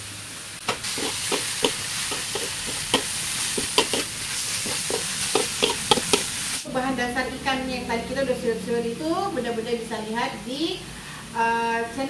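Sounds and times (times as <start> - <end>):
food sizzling in a wok: 0.0 - 6.7
metal spatula scraping a wok: 0.7 - 6.4.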